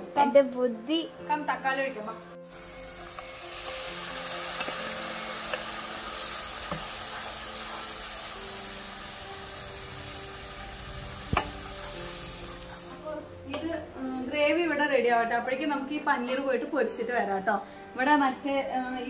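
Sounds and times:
spices sizzling in a pan: 2.4 - 14.2.

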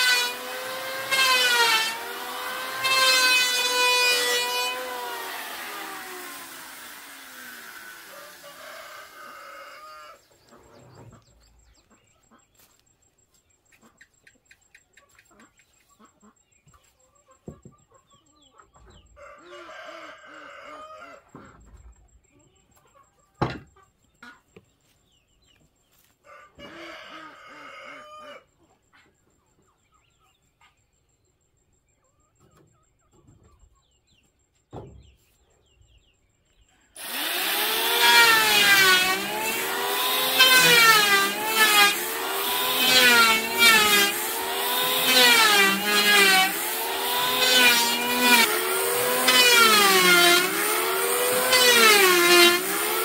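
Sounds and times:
electric hand planer on wood: 0.0 - 9.3, 37.0 - 53.0
rooster crowing: 8.1 - 10.2, 19.2 - 21.2, 26.2 - 28.4.

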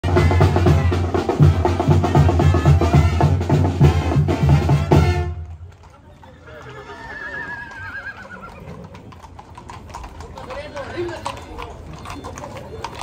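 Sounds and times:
music with drum beat and bass: 0.0 - 5.2.

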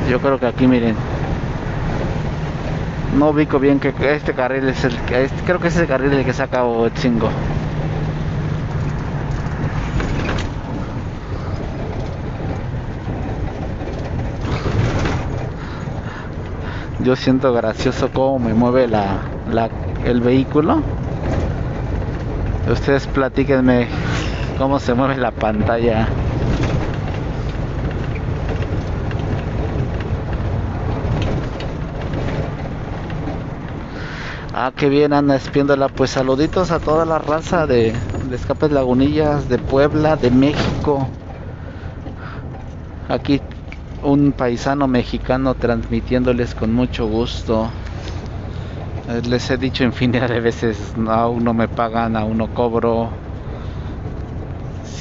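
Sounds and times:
minibus engine hum: 0.0 - 55.0
road noise: 0.0 - 55.0
short knocks or rattles: 7.0 - 34.4, 35.4 - 44.1.

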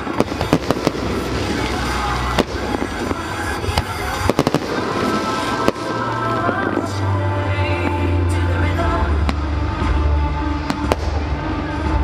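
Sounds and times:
fireworks bangs and crackling: 0.0 - 12.0
music with steady bass line: 0.0 - 12.0.

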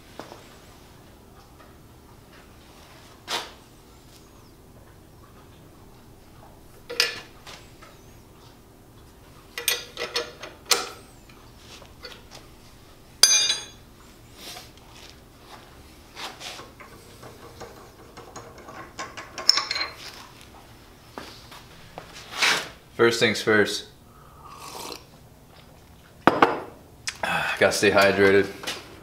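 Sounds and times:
metal clanks and clinks: 6.9 - 7.3, 9.6 - 11.0, 13.2 - 13.8, 16.8 - 20.0
ringing metallic clink: 13.2 - 13.8.

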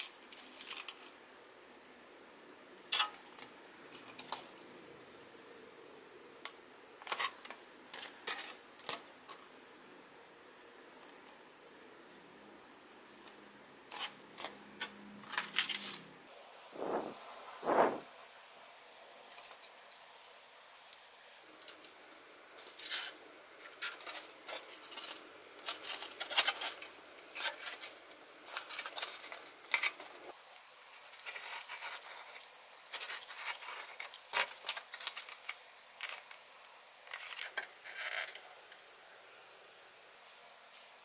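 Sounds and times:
foam scratching and squeaking: 16.7 - 18.4.

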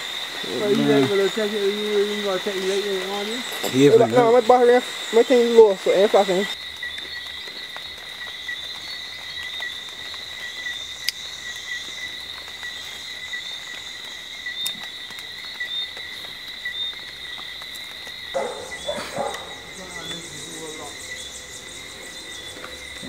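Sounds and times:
insect chorus trilling: 0.0 - 23.0.

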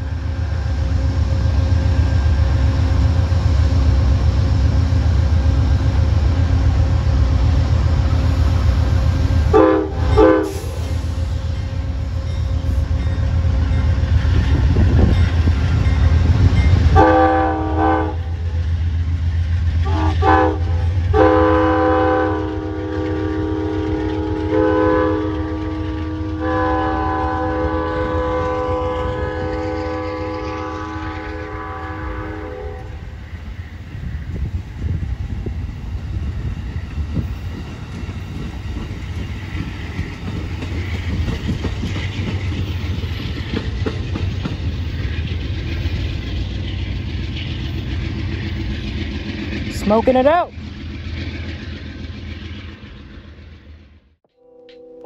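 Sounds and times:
diesel train rumbling by: 0.0 - 55.0
train horn blasts: 9.5 - 11.2, 16.8 - 18.5, 19.8 - 33.1, 54.3 - 55.0.

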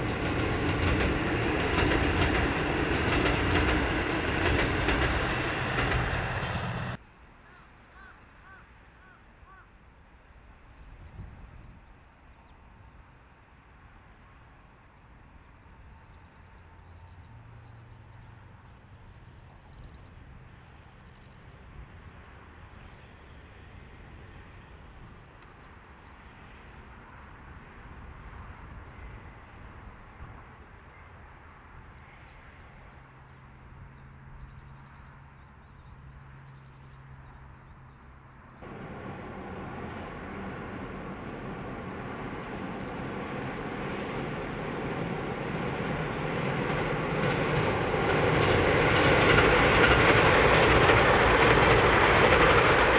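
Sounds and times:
train engine drone: 0.0 - 7.0, 12.7 - 52.9
train rumble: 0.0 - 7.0, 12.6 - 52.9
faint bird chirps: 7.3 - 9.7.

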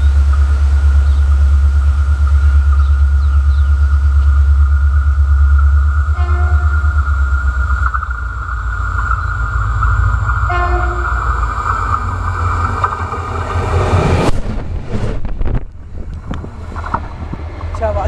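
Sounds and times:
steady high-pitched tone: 0.0 - 12.6
freight train rumbling past: 0.0 - 18.0
train horn toot: 6.1 - 7.0, 10.4 - 11.4.

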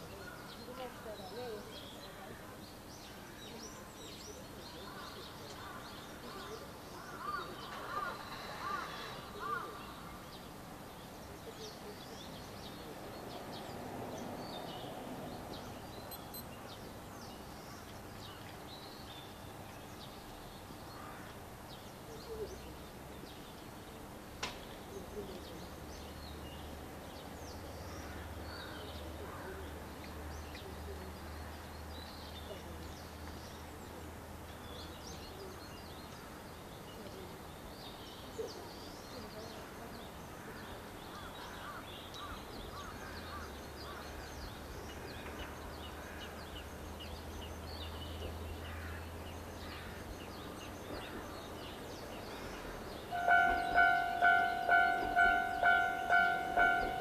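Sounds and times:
small birds chirping: 0.0 - 21.2
low steady hum: 53.1 - 57.0.

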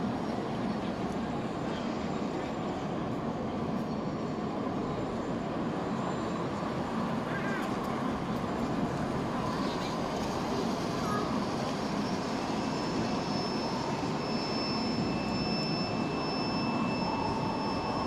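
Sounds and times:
steady high whine: 0.1 - 18.0.

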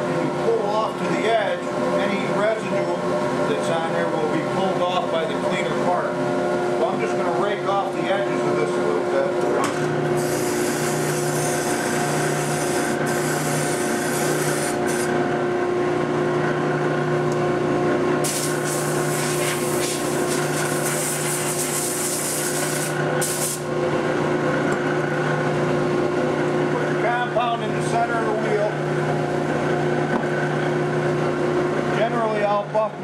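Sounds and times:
buffing machine humming: 8.1 - 15.9, 18.2 - 23.9.

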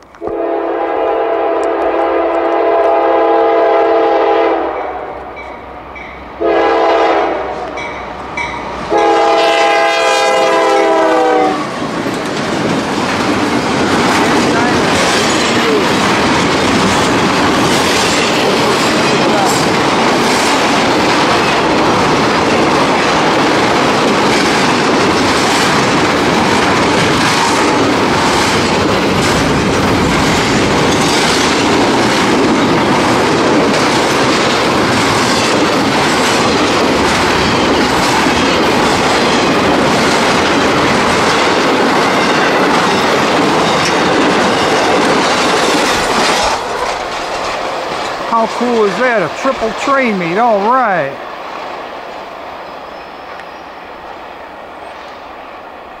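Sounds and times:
train cars rumbling past: 0.2 - 56.0
wheels clicking over rail joints: 11.8 - 49.0.

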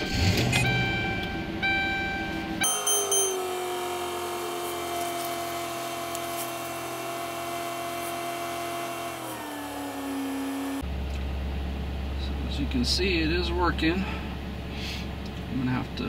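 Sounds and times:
machine-like motor whine: 2.6 - 10.8.

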